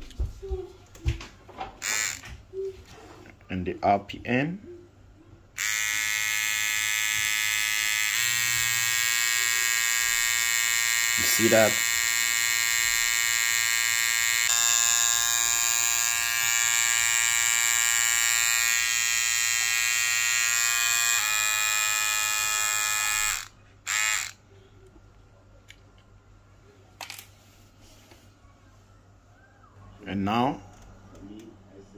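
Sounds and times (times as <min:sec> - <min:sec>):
electric hair trimmer buzzing: 0:01.8 - 0:02.3, 0:05.6 - 0:24.4.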